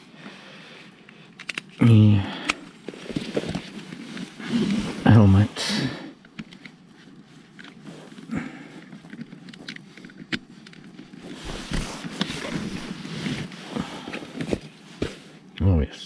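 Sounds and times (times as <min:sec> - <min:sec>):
plastic clicks: 0:01.0 - 0:01.8
rustling: 0:02.6 - 0:05.4, 0:06.1 - 0:15.5.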